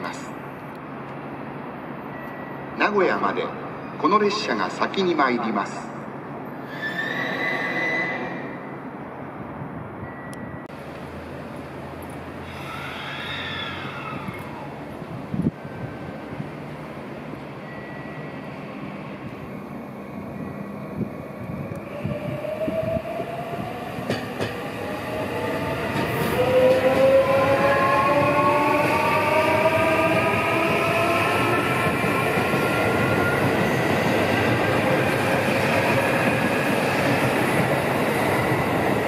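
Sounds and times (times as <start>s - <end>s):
train cars rumbling: 6.2s - 39.0s
electric train motors whining: 18.5s - 23.1s.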